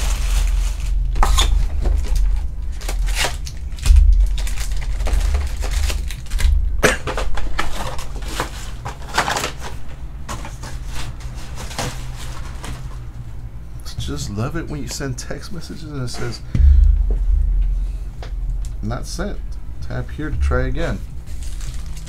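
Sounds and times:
steady low hum: 0.0s - 9.0s, 9.8s - 22.0s
crinkling foil: 0.0s - 13.2s, 21.3s - 22.0s
dull thump: 3.8s - 6.8s, 16.5s - 21.3s.

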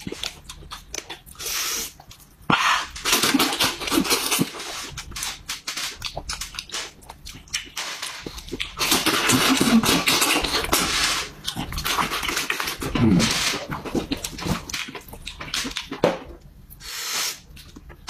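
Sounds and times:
wet chewing and lip smacking: 0.0s - 10.8s.

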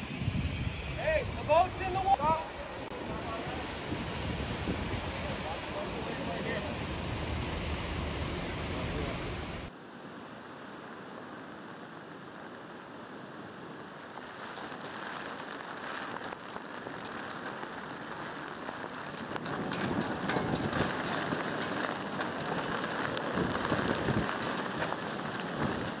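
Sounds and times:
rain: 0.0s - 26.0s
wind: 0.0s - 26.0s.

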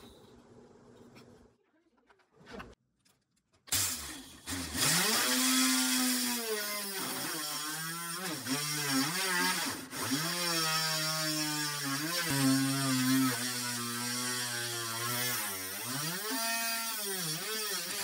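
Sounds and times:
drill motor drilling into wood: 3.7s - 18.0s.

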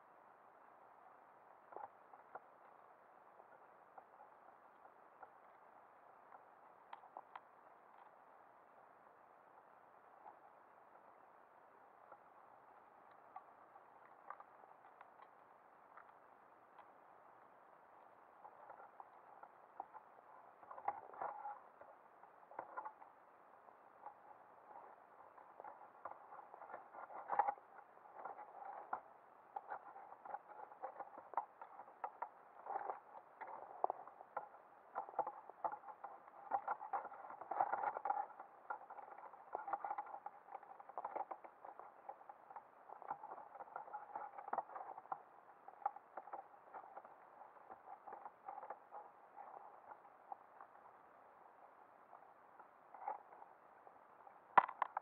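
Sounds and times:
underwater clicking and crackling: 6.3s - 8.2s, 12.0s - 17.0s, 18.0s - 23.2s, 24.0s - 51.0s, 51.6s - 55.0s.

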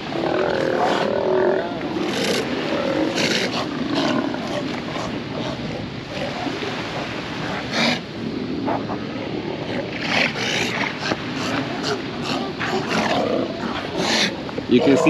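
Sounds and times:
sea lions growling and barking: 0.0s - 15.0s.

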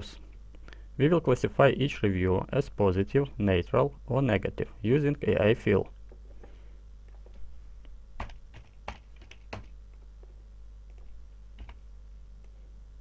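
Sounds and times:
typing on computer keyboard: 8.2s - 9.7s, 10.9s - 11.8s.

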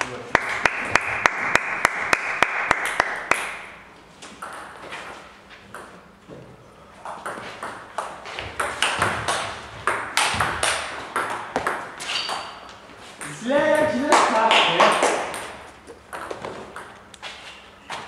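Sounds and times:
table tennis ball bouncing: 4.4s - 4.9s, 5.7s - 6.4s, 7.0s - 17.2s.

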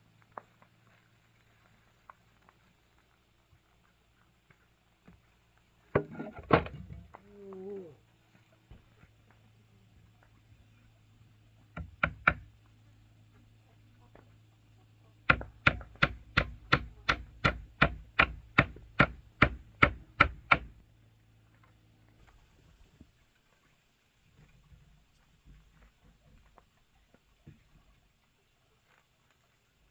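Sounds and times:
hand tool strikes: 15.3s - 20.7s.

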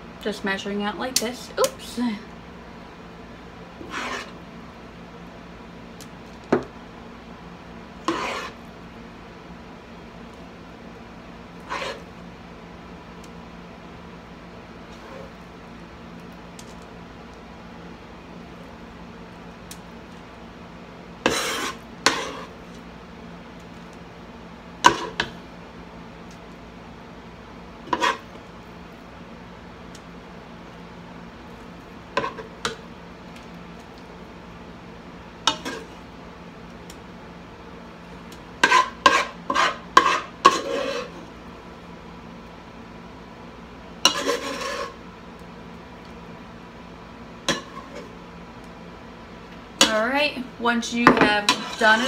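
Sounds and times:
faint steady hum: 0.0s - 52.0s
spoon scraping a pot: 3.8s - 4.4s, 8.0s - 8.6s, 11.6s - 12.1s, 21.2s - 22.6s, 27.9s - 28.3s, 32.2s - 32.5s, 35.5s - 36.0s, 38.6s - 41.3s, 44.1s - 45.0s, 47.4s - 48.1s, 51.2s - 52.0s.

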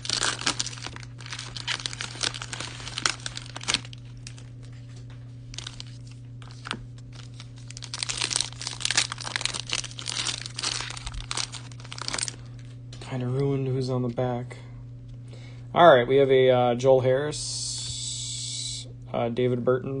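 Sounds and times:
cellophane wrappers crinkling and tearing: 0.0s - 12.8s.

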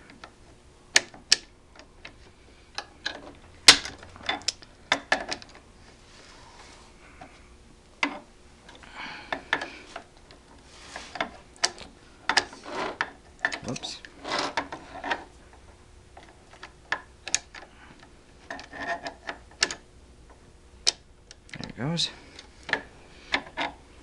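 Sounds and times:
wrench scraping on nut: 10.9s - 15.3s, 18.5s - 19.8s.

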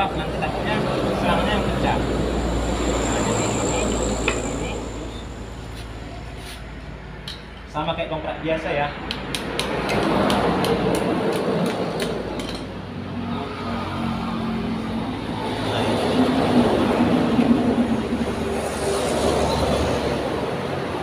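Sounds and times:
engine-like drone: 0.0s - 21.0s.

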